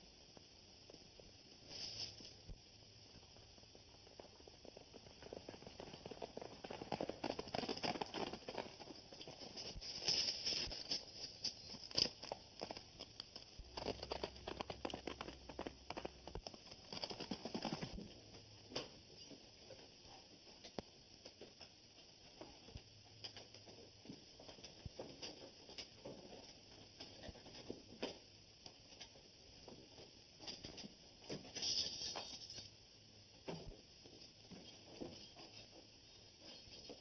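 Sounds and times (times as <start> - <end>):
horse hoofbeats on dirt: 3.2 - 18.4.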